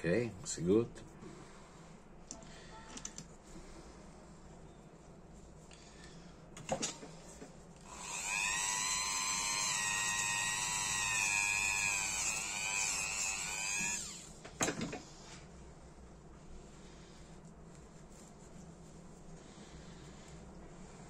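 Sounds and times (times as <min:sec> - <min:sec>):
rotary tool whine: 0:07.8 - 0:14.4.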